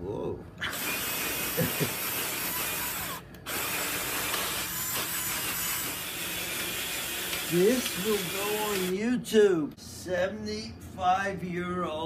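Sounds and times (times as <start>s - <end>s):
drill brush scrubbing carpet: 0.7s - 8.9s.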